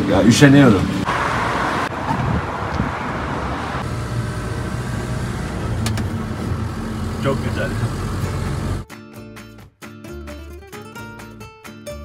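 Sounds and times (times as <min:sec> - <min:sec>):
diesel engine running: 0:00.0 - 0:08.8
road noise: 0:00.0 - 0:08.8.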